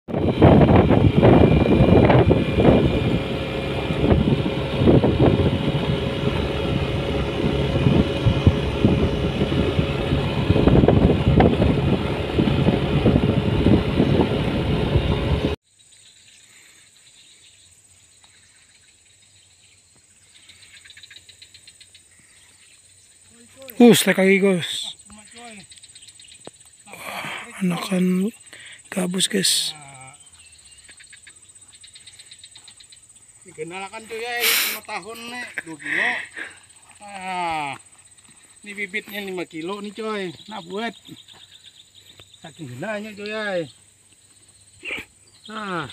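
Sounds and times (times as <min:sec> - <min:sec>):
scooter engine on gravel road: 0:00.1 - 0:15.6
faint high drone of insects: 0:15.6 - 0:45.9.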